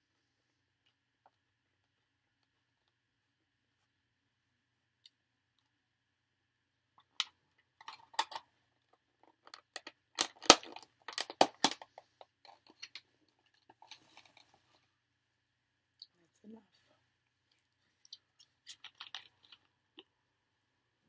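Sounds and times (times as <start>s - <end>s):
plastic container crackling: 9.2s - 14.6s.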